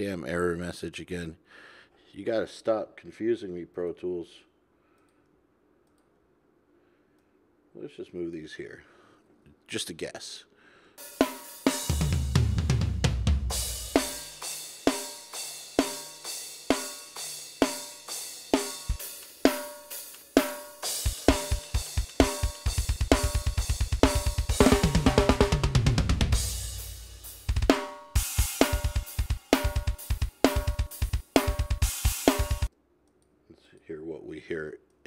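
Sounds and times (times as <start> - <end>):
tom fill: 10.7 - 32.7
snare hits with cymbals: 11.0 - 32.7
kick and snare beat: 11.1 - 32.7
fast double kick drum: 21.0 - 26.6, 27.4 - 32.7.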